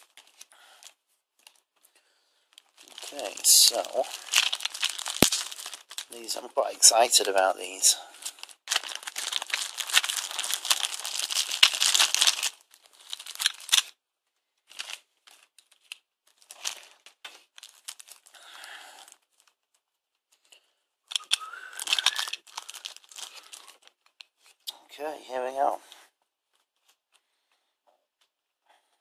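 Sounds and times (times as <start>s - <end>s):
plastic packaging crinkling: 0.0s - 1.7s, 2.5s - 14.0s, 14.6s - 19.8s, 21.1s - 24.6s.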